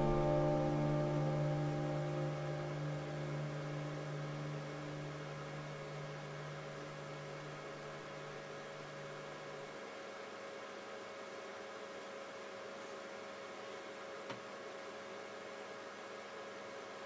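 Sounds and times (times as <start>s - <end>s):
higher tones: 0.0s - 8.0s
low hum: 0.0s - 9.6s
faint hiss: 0.0s - 12.2s.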